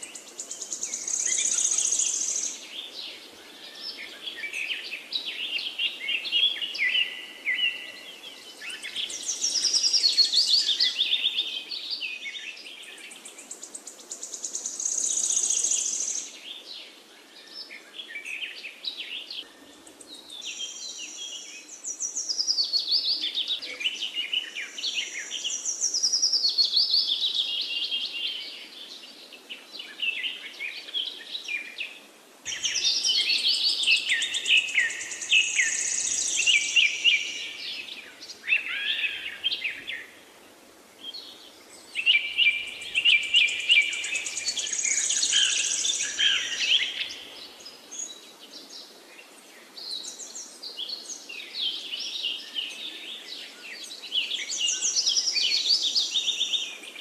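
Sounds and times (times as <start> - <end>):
birds chirping: 32.5 - 40.2, 41.0 - 57.0.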